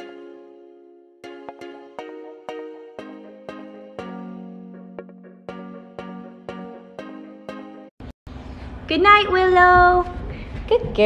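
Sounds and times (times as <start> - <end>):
electronic synth chords: 0.0 - 8.1.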